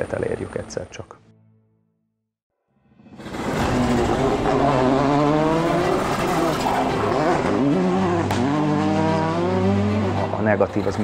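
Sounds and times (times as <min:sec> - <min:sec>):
rally car engine at full throttle: 0:03.1 - 0:11.0.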